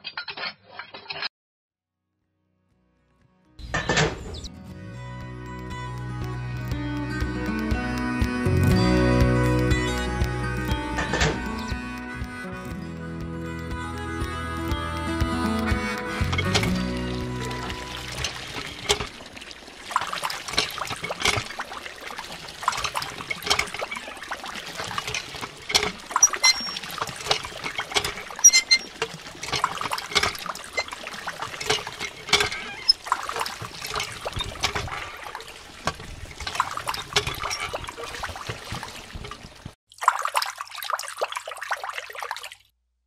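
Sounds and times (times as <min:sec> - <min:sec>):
water trickling into plastic pool: 0:16.2 - 0:42.7.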